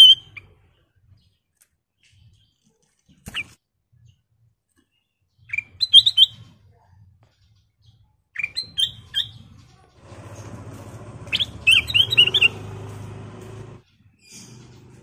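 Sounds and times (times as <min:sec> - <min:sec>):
bird singing whistled notes: 0:00.0 - 0:00.5, 0:05.3 - 0:06.5, 0:07.9 - 0:09.7, 0:11.2 - 0:15.0.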